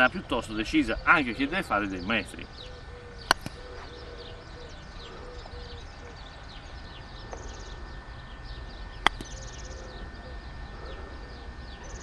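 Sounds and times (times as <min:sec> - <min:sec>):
birds chirping: 0:00.0 - 0:12.0
putter striking golf ball: 0:03.2 - 0:03.6, 0:09.0 - 0:09.4.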